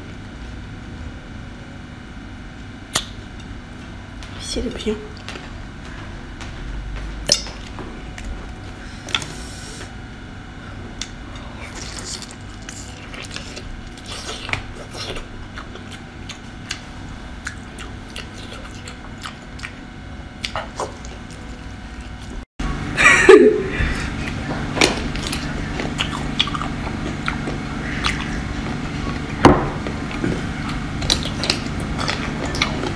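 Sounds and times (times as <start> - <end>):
chewing soft flesh: 11.0 - 22.4, 24.0 - 32.9.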